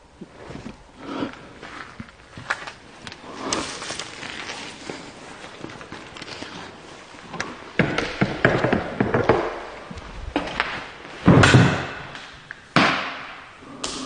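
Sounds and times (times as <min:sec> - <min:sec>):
irregular thumps and knocks: 0:07.2 - 0:13.4.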